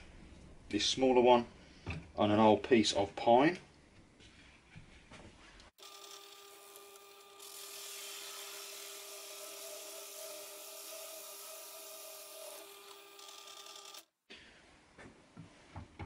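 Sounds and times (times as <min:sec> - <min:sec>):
drill press motor whining: 0:05.8 - 0:14.1.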